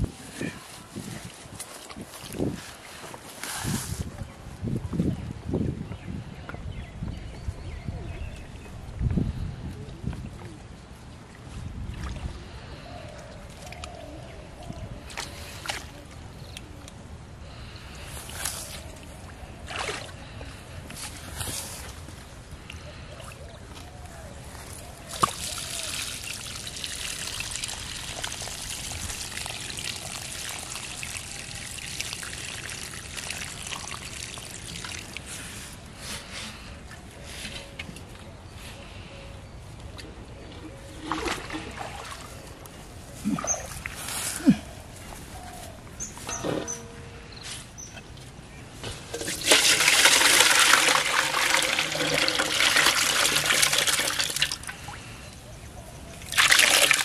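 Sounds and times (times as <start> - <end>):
water pouring onto grass: 25.1 - 35.6, 49.1 - 54.8, 56.2 - 57.0
water pouring into metal basin: 49.2 - 54.7, 56.3 - 57.0.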